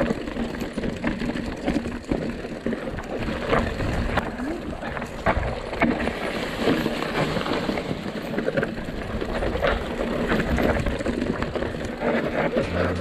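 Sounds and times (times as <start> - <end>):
mountain bike rattling: 0.0 - 13.0
low rumble: 12.6 - 13.0.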